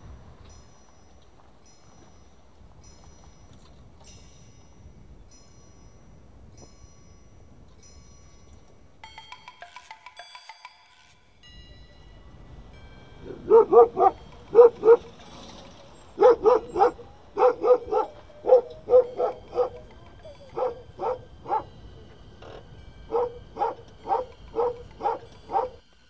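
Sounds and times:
dog barking: 13.3 - 15.2, 16.1 - 21.7, 23.1 - 25.8.

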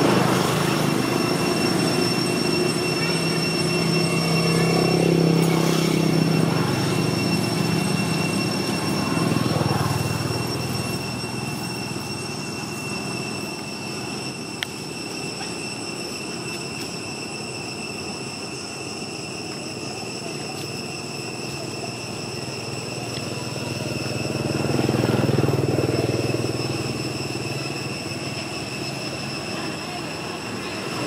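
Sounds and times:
passing vehicle engine rumble: 0.0 - 14.6, 20.0 - 31.0
high-pitched whine: 0.0 - 31.0.

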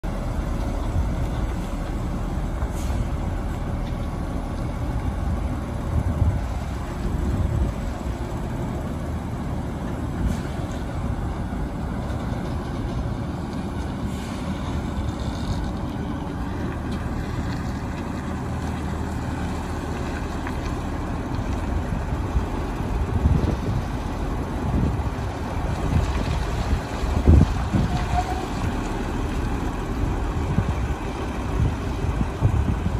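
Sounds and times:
truck engine idling: 0.0 - 32.9
wind gusts on microphone: 4.8 - 15.9, 21.4 - 32.9.

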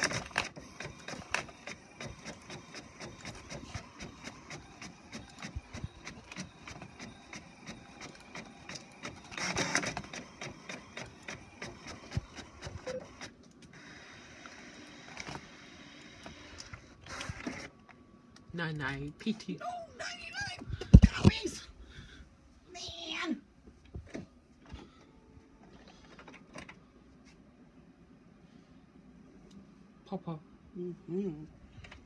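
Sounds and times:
printer whirring: 0.0 - 18.2.

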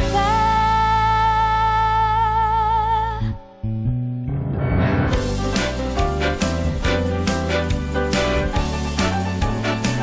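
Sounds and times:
dance music: 5.0 - 10.0.

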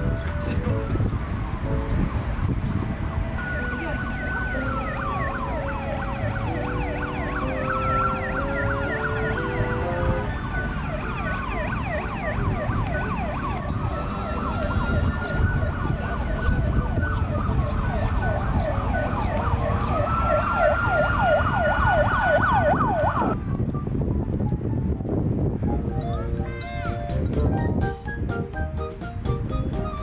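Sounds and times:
emergency vehicle siren: 3.2 - 25.4.

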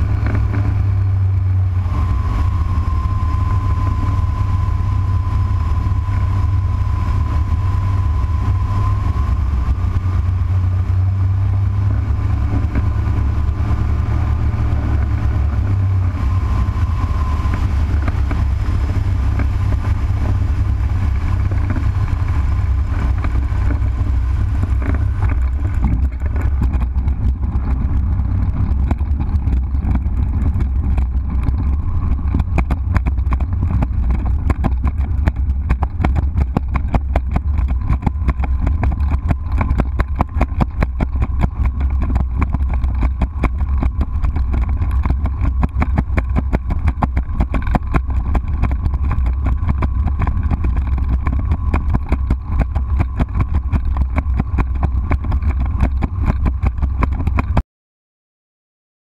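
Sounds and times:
aircraft engine droning: 0.0 - 57.5
rapid clatter of knocks: 22.7 - 57.6.

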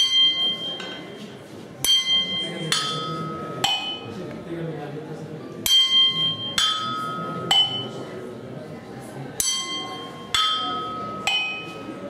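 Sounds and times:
drumsticks striking porcelain: 1.8 - 4.1, 5.6 - 8.0, 9.4 - 11.9.

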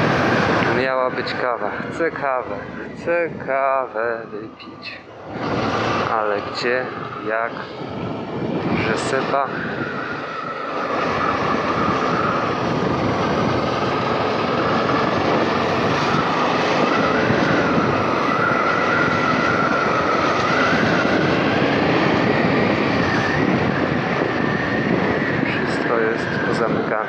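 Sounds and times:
wavering whine: 0.0 - 27.0
wind on microphone: 0.0 - 27.0.

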